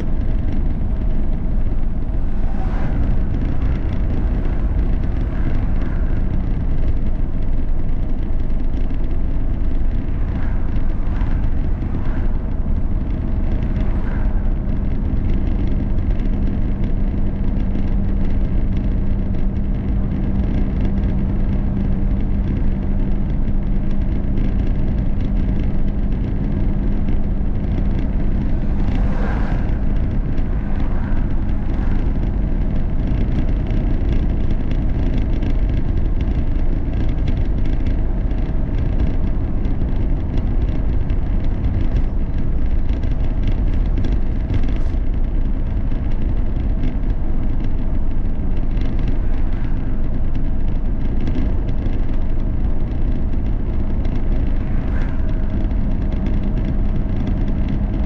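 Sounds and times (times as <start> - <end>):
car interior road drone: 0.0 - 58.0
vehicles swishing past: 0.2 - 7.8, 26.8 - 34.4.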